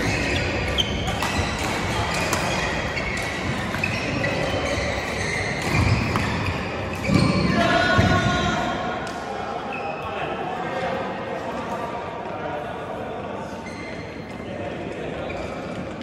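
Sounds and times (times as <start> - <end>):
racket hitting shuttlecock: 0.0 - 8.3
shoes squeaking on court floor: 0.0 - 8.3, 9.6 - 10.1, 13.5 - 14.5, 15.2 - 16.0.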